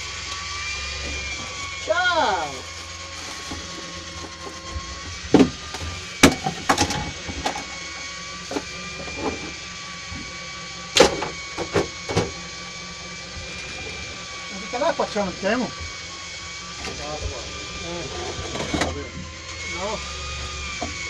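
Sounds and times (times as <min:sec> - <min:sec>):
fishing reel whining: 0:12.3 - 0:21.0.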